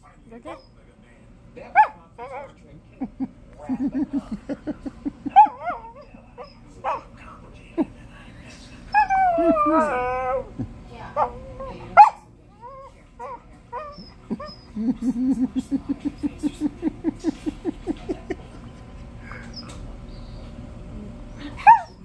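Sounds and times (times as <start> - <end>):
dog whimpering: 3.8 - 7.0, 8.9 - 12.0, 12.6 - 18.1
dog whining: 8.9 - 16.3, 21.4 - 22.0
dog yelp: 21.6 - 22.0.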